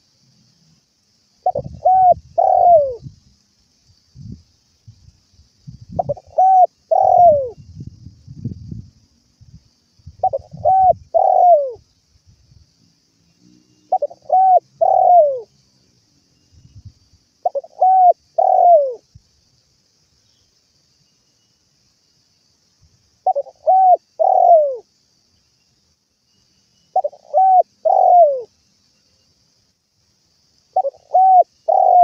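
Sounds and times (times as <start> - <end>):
dove cooing: 1.4 - 3.0, 6.0 - 7.6, 10.2 - 11.8, 13.9 - 15.5, 17.4 - 19.0, 23.2 - 24.9, 27.0 - 28.5, 30.8 - 32.0.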